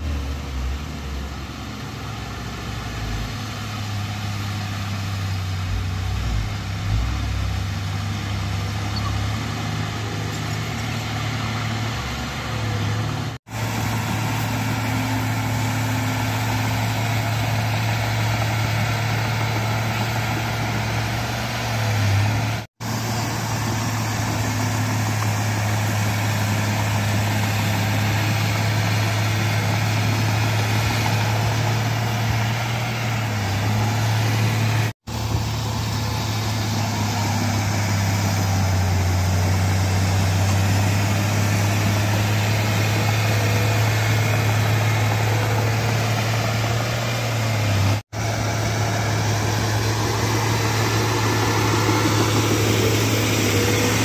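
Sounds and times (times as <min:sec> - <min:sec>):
bulldozer diesel engine droning: 0:00.0 - 0:54.0.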